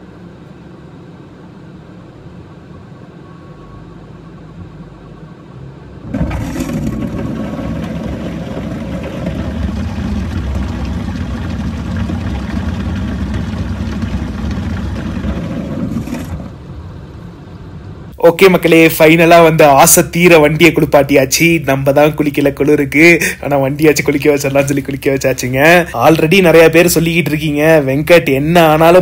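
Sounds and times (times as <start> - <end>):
quiet engine hum: 0.0 - 29.0
heavy water pouring on car roof: 6.1 - 16.6.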